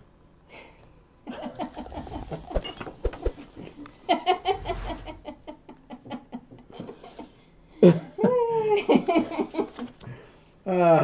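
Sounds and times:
man and woman laughing: 0:04.1 - 0:05.4.

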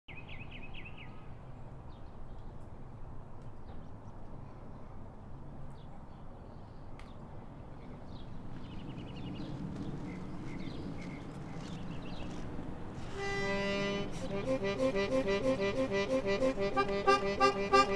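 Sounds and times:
small birds chirping: 0:05.7 - 0:17.9.

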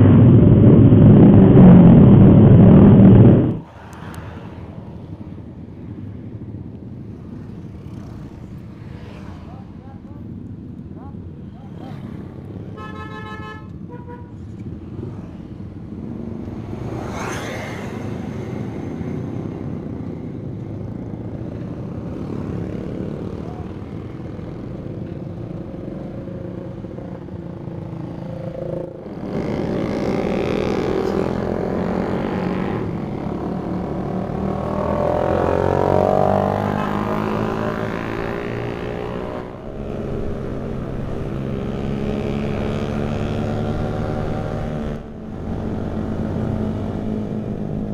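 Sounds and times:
passing traffic: 0:00.0 - 0:47.9
motorcycle engines running: 0:05.0 - 0:12.8, 0:13.7 - 0:47.9
horn tooting: 0:12.7 - 0:14.4.

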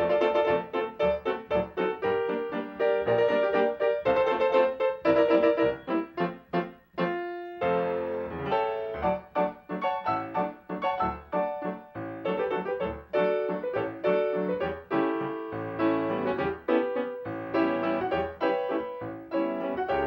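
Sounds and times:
piano music: 0:00.0 - 0:20.0.

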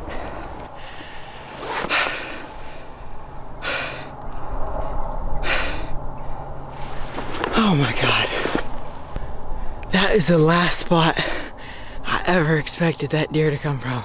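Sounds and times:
man breathing hard: 0:00.0 - 0:06.6, 0:11.1 - 0:12.1.

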